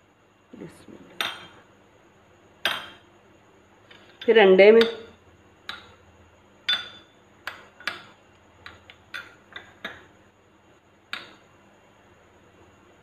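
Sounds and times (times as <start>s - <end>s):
metal spoon clinking on glass bowl: 6.6s - 10.0s.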